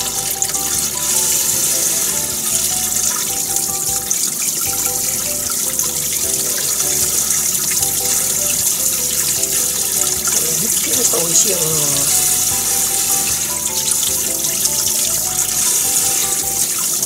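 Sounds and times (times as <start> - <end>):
hands rinsing fish in water: 0.0 - 17.0
light background music: 0.0 - 17.0.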